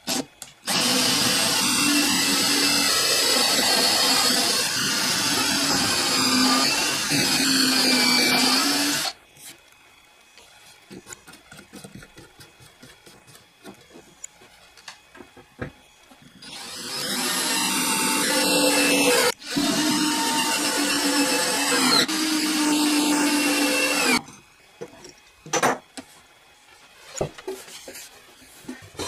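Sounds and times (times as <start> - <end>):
cordless drill motor whine: 0.1 - 9.2, 16.4 - 24.3.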